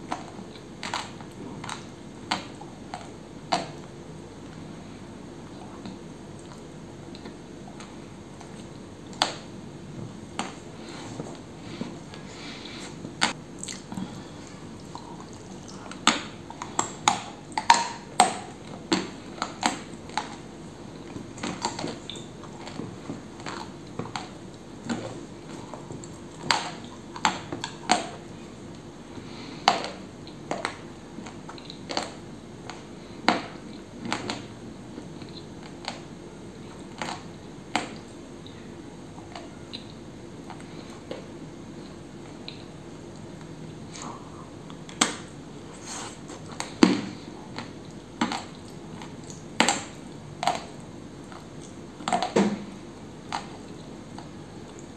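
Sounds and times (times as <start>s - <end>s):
crunchy chewing close up: 13.6s - 32.9s.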